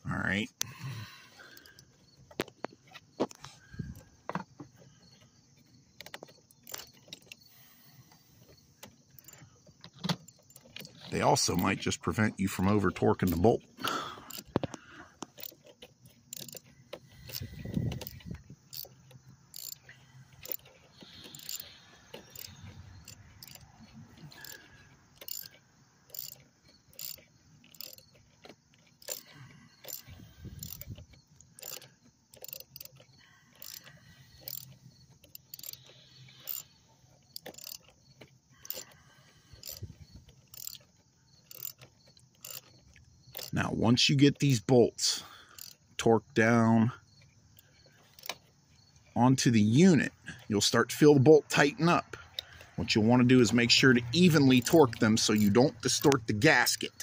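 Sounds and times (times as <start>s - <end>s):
ratchet clicking: 6.0s - 43.6s, 45.3s - 45.9s, 47.1s - 49.2s, 52.3s - 57.0s.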